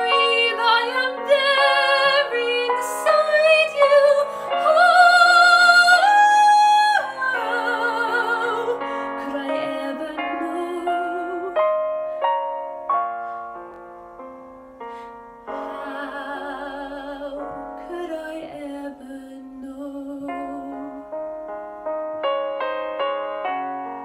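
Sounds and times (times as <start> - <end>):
woman singing operatically: 0.0 - 11.6, 15.6 - 21.0
piano accompaniment: 0.0 - 24.0.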